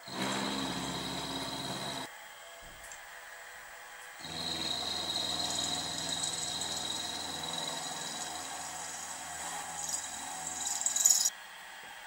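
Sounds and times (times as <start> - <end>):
milling machine cutting metal: 0.0 - 2.1, 4.2 - 11.3.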